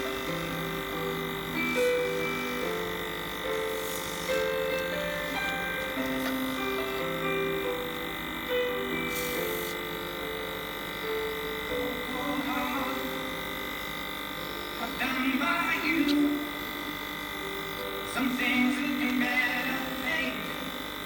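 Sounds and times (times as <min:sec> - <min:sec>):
electric air blower humming: 0:00.0 - 0:21.0
background music with singing: 0:11.8 - 0:13.6, 0:14.8 - 0:16.8, 0:18.0 - 0:20.8.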